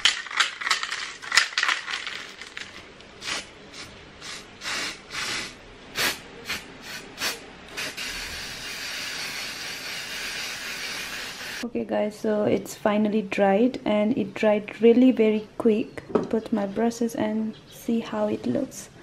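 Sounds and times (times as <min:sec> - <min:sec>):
spray paint can hissing: 0:03.2 - 0:11.6.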